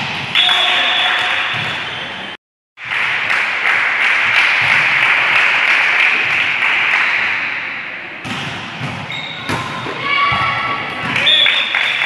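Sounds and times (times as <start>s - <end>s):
applause: 2.8s - 7.2s, 11.2s - 12.0s.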